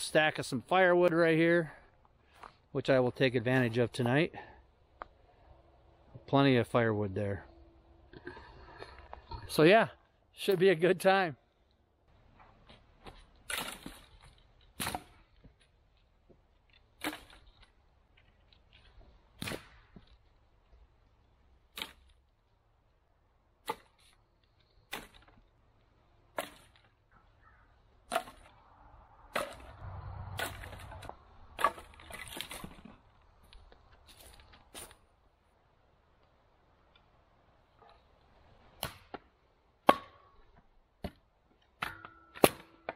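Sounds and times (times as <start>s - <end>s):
branches rustling: 11.4s - 22.6s, 23.6s - 39.2s
firewood snapping: 13.4s - 15.7s, 16.6s - 20.3s, 21.7s - 22.2s.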